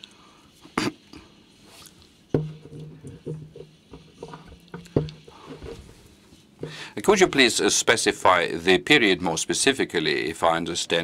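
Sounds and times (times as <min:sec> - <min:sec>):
microphone handling knocks: 0:02.3 - 0:06.9.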